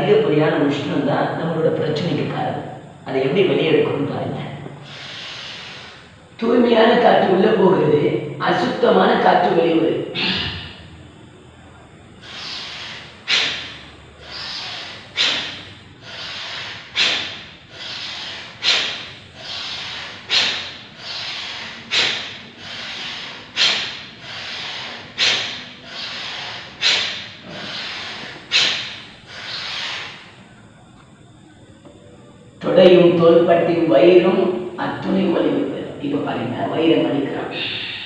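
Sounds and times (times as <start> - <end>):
man breathing forcefully: 4.8 - 6.3, 12.2 - 30.4.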